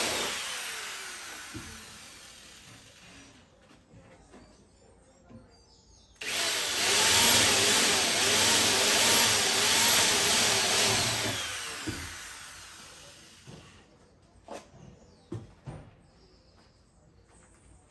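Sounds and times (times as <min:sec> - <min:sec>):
cordless drill into sheet metal: 0:00.0 - 0:03.1, 0:06.2 - 0:13.6.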